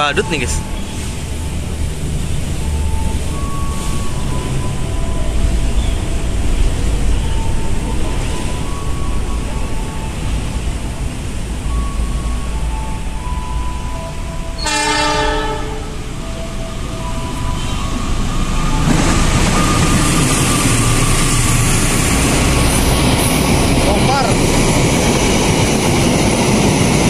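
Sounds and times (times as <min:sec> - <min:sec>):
locomotive and coaches passing: 0:00.0 - 0:27.0
train horn blast: 0:14.3 - 0:16.2.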